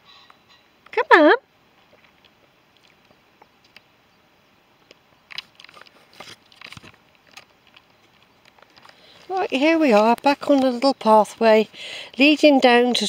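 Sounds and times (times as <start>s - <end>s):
faint crunching and clicking: 1.8s - 3.9s, 4.8s - 13.0s.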